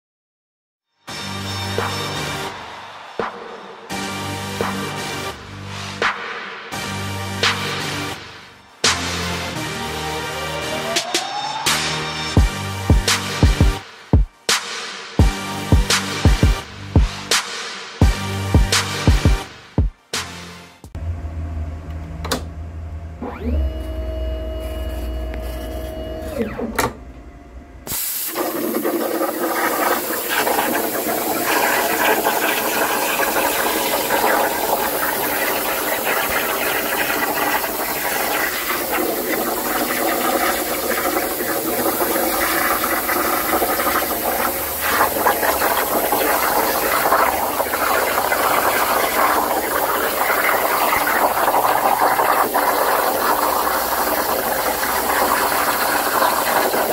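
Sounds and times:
drive motors whining: 21.0s - 27.9s
plasma arc hissing: 27.9s - 56.9s.

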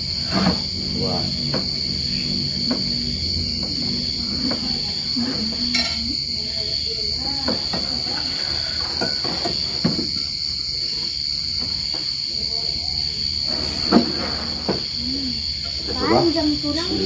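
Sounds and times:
low hum: 0.0s - 9.0s
crickets trilling: 0.0s - 17.0s.

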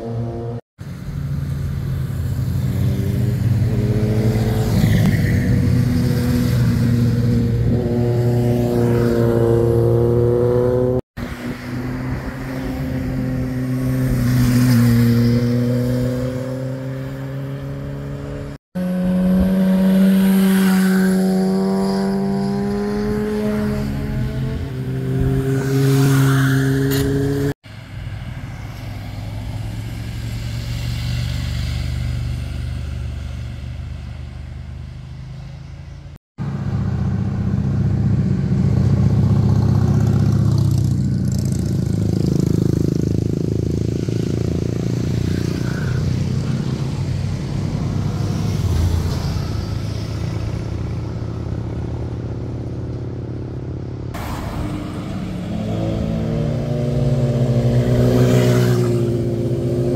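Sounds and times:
motorcycles accelerating past: 1.9s - 27.6s, 36.5s - 52.6s, 54.2s - 59.9s.

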